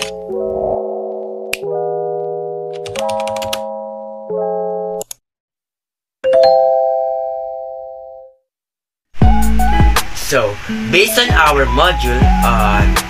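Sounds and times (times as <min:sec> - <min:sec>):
synthesizer chords: 0:00.0 - 0:05.0, 0:09.2 - 0:10.2
keyboard typing clicks: 0:02.7 - 0:03.7.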